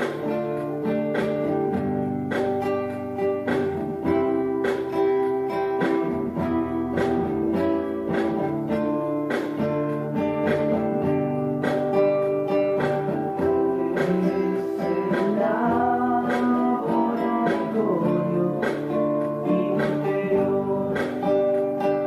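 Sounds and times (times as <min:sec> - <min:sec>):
strummed acoustic guitar: 0:00.0 - 0:22.0
person singing: 0:12.5 - 0:22.0.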